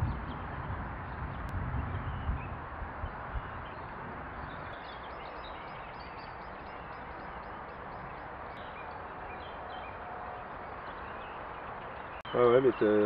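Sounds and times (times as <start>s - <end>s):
small birds chirping: 0.0s - 13.0s
steady outdoor hiss: 0.0s - 13.0s.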